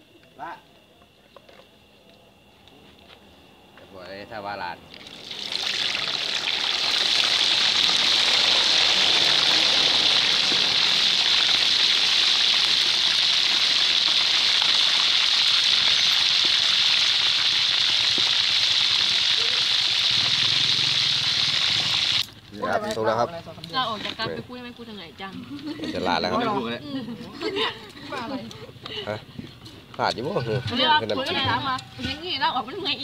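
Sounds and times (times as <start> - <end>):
fish sizzling in hot oil: 5.0 - 22.4.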